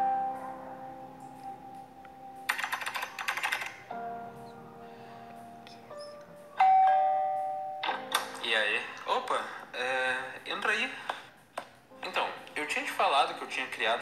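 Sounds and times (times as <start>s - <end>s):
soft music chords: 0.0s - 2.8s, 3.8s - 13.6s
keyboard typing clicks: 2.5s - 3.8s.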